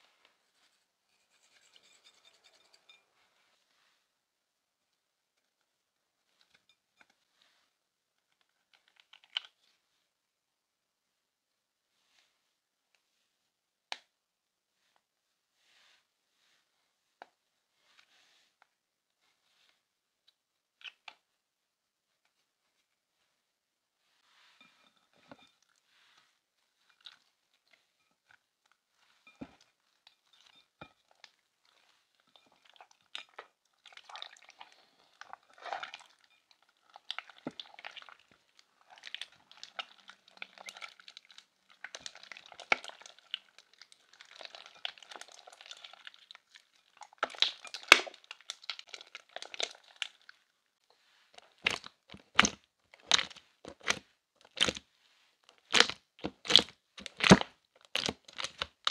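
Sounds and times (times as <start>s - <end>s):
slime squishing: 29.2s - 50.4s, 51.3s - 54.8s, 55.5s - 58.9s.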